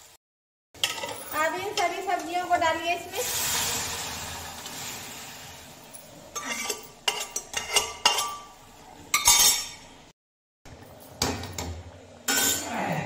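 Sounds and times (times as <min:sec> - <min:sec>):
ladle scraping a steel pot: 0:06.4 - 0:08.5.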